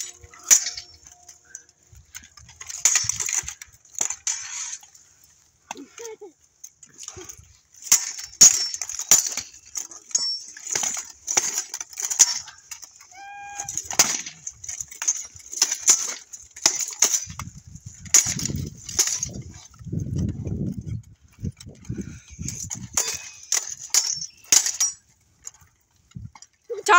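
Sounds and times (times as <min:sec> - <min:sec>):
swords clashing: 0:00.0 - 0:04.9, 0:07.8 - 0:17.4, 0:18.1 - 0:19.8, 0:22.7 - 0:25.0
armour and mail jingling: 0:00.0 - 0:26.9.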